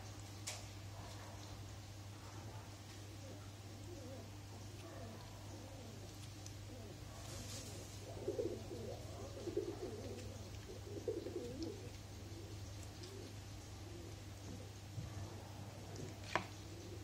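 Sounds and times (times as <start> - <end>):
dove cooing: 3.1 - 15.2, 16.6 - 17.0.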